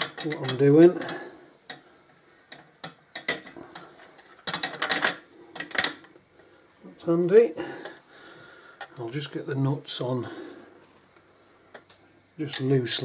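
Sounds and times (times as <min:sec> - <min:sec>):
metal clinks and knocks: 0:02.5 - 0:06.1.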